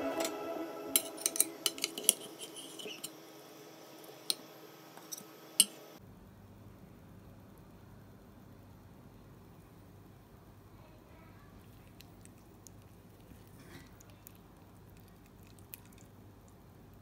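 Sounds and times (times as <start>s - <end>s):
soft background music: 0.0s - 2.0s.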